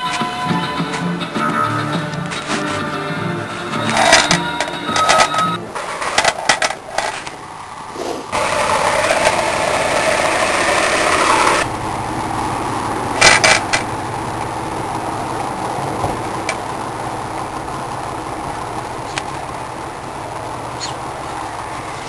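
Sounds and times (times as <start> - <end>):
forklift engine running: 0.0 - 22.0
metallic clanks: 3.7 - 7.4.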